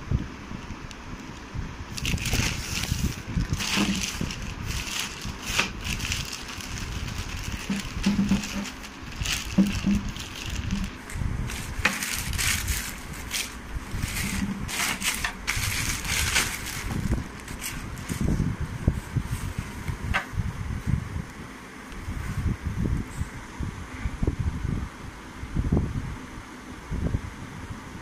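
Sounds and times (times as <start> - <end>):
plastic packaging crinkling: 1.9 - 18.4
dull handling bumps: 3.4 - 17.6.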